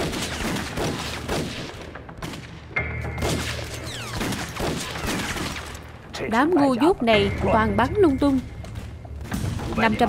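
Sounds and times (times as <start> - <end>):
rifle fire: 0.0 - 2.6, 3.2 - 5.8.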